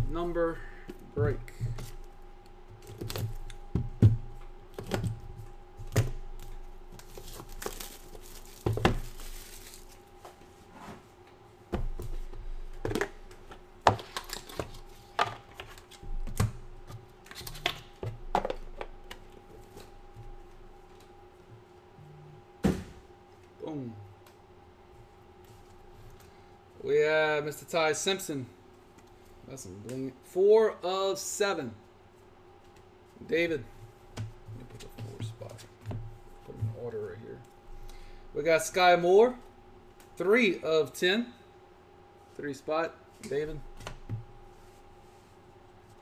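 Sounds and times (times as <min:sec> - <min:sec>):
faint steady hum: 0:00.0 - 0:46.0
shrink wrap tearing and crinkling: 0:06.9 - 0:10.0.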